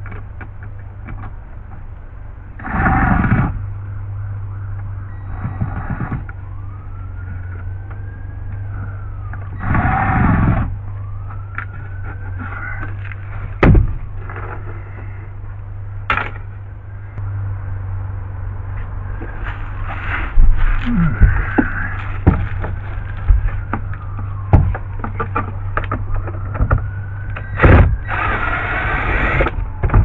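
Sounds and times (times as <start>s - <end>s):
steady low hum: 0.0s - 30.0s
faint wailing tone: 16.8s - 29.4s
sharp knocks: 21.1s - 26.0s.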